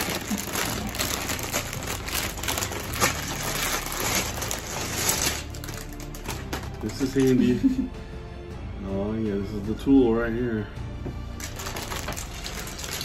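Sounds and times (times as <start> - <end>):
plastic bag crinkling: 0.0 - 7.6, 11.4 - 13.0.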